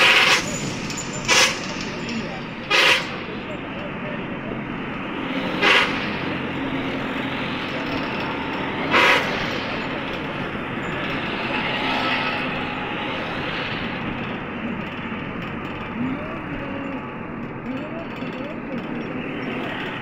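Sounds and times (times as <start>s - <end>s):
sharp bursts of noise: 0.0s - 3.4s, 5.0s - 14.3s
vehicle road and engine noise: 0.0s - 20.0s.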